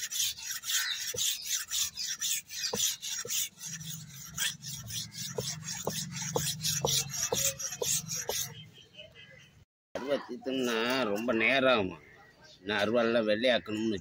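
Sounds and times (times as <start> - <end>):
blade scraping on sharpening stone: 0.0 - 8.5.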